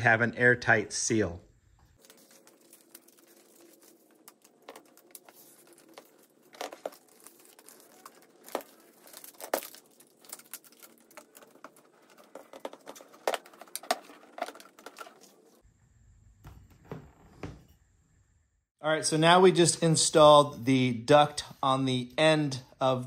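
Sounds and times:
foil tape crinkling: 2.0 - 15.6.

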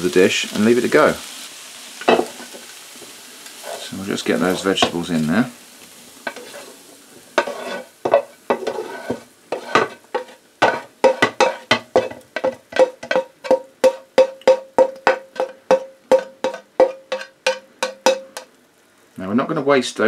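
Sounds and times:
spatula scraping frying pan: 2.0 - 5.0, 6.2 - 18.6.

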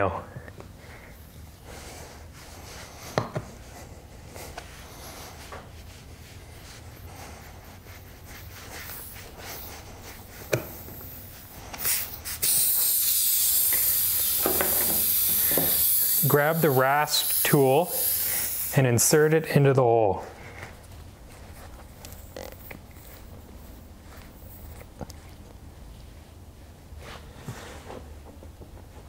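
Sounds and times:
air hissing from tyre: 7.0 - 18.8.

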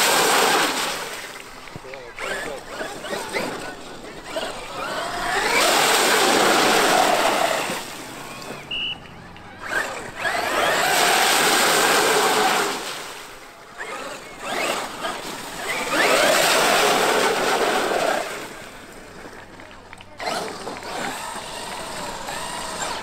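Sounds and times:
water spray rushing: 0.0 - 9.1, 9.7 - 13.4, 14.1 - 18.7
rc truck tyre noise: 0.0 - 23.0.

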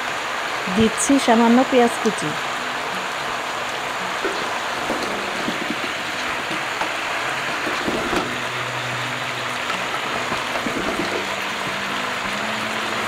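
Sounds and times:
meat sizzling in a pot: 0.0 - 13.0.

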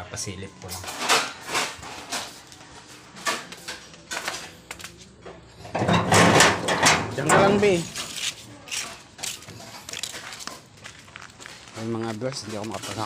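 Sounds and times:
metal gate rattling and scraping: 0.7 - 2.4, 5.6 - 8.2
sharp knocks and clatters: 5.7 - 8.1.

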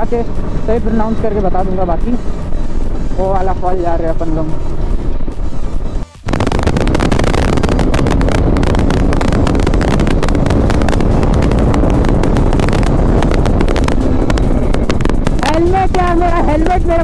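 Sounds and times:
motorcycle engine running: 6.3 - 17.0
wind buffeting on microphone: 6.3 - 17.0.

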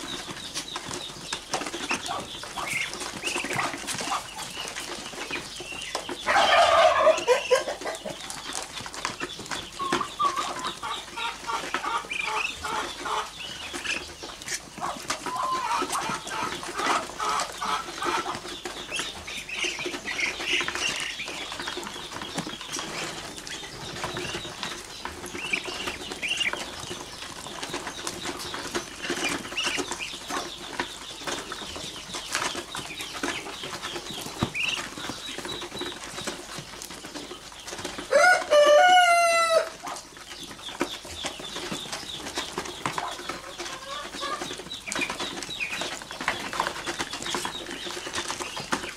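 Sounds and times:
ducklings peeping and trilling: 0.0 - 48.9.

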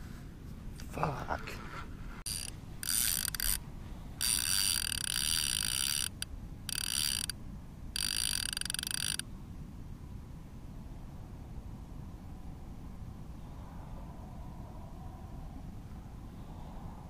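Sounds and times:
fishing reel clicker ratcheting: 2.3 - 3.6, 4.2 - 7.4, 8.0 - 9.2.

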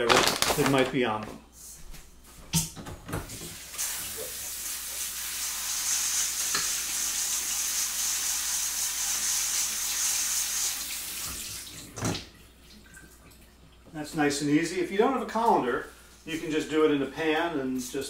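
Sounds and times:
faucet water running over beans: 3.3 - 12.0.

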